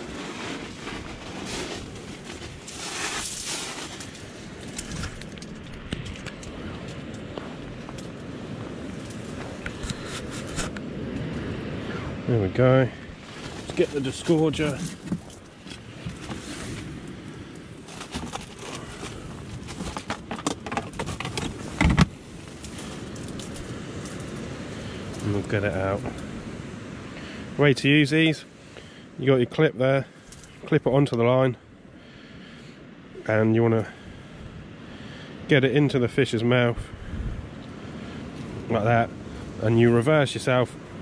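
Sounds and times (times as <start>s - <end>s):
clothing rustling on microphone: 0.0s - 10.8s, 13.1s - 17.2s
wind noise: 0.0s - 27.6s, 35.9s - 41.0s.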